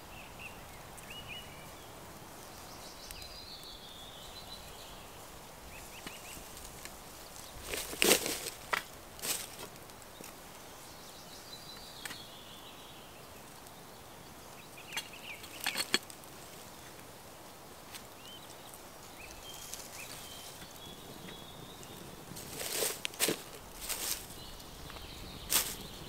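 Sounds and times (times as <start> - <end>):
kettle and metal stove clinking: 14.9 - 16.2.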